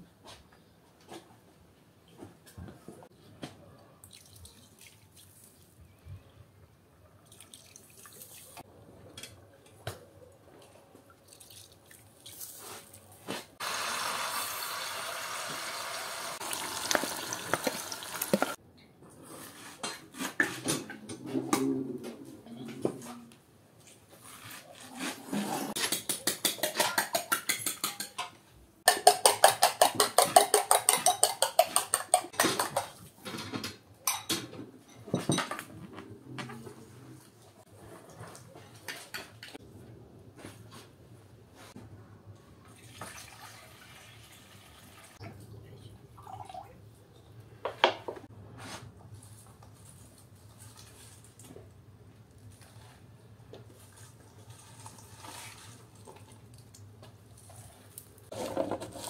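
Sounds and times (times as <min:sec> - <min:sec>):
vegetables sizzling in oil: 0:13.6 - 0:18.6
fork beating eggs in glass bowl: 0:28.9 - 0:32.9.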